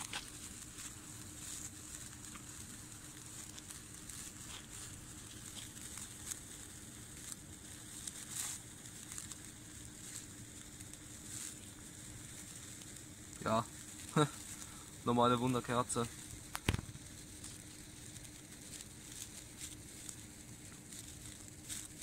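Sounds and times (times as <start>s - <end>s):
sparkler crackles: 0.0s - 22.0s
sparkler fizzing: 0.0s - 22.0s.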